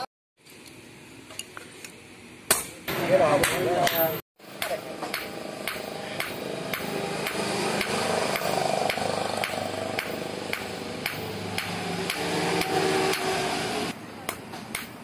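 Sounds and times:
hammer striking metal on an anvil: 2.5s - 13.5s.

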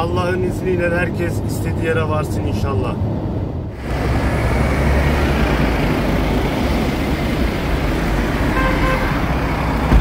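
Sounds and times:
road traffic engines: 0.0s - 10.0s
car horn toot: 8.5s - 9.2s.

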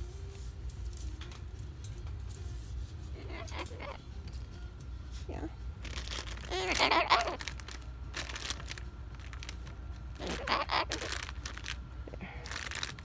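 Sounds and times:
light crinkling and clicking: 0.6s - 2.6s, 5.8s - 11.8s
cockatoo wavering calls: 3.1s - 4.0s, 6.5s - 7.5s, 10.2s - 11.4s.

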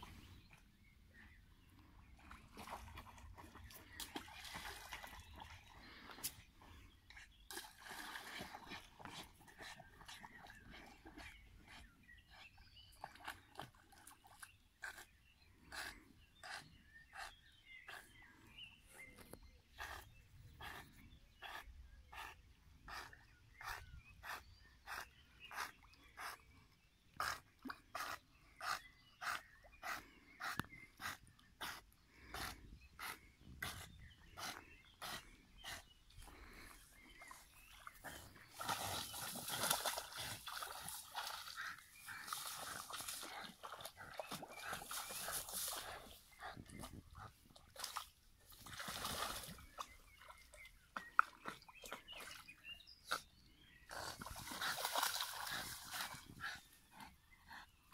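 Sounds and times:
water splashing: 38.0s - 46.1s, 47.7s - 49.9s.

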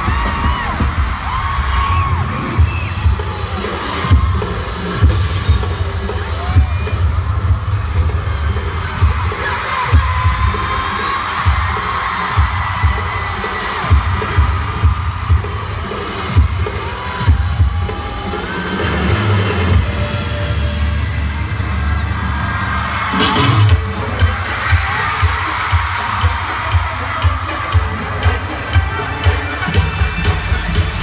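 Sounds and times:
heavy thudding bass beat: 0.0s - 20.4s
dance music over loudspeakers: 0.0s - 31.0s.

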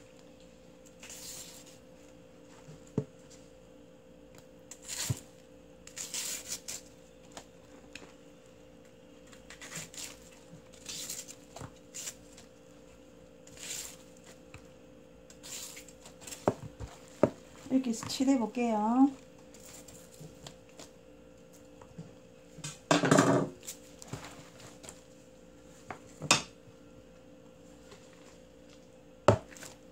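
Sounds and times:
cabbage leaves rustling and tearing: 0.9s - 1.8s, 4.7s - 8.0s, 9.2s - 12.6s, 13.4s - 14.5s, 15.3s - 17.2s, 19.5s - 20.9s.

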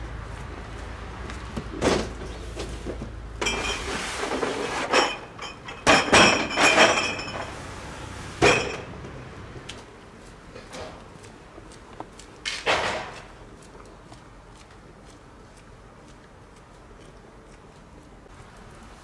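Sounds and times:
rattling with ringing tone: 4.9s - 7.6s.

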